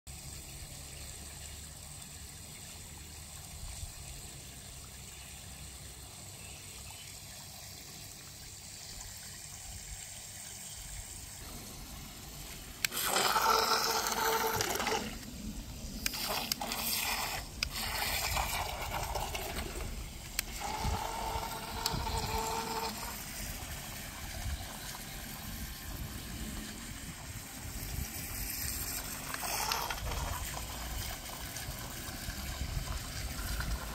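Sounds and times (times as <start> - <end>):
water churning and spraying: 7.8 - 33.9
electric motors whining: 11.4 - 31.0.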